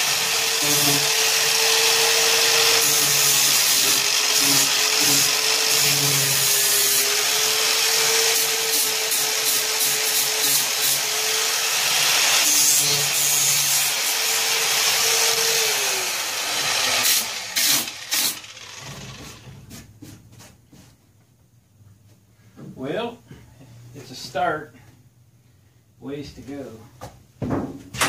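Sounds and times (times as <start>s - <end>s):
angle grinder sanding: 0.0s - 19.5s
knocks: 27.0s - 28.0s.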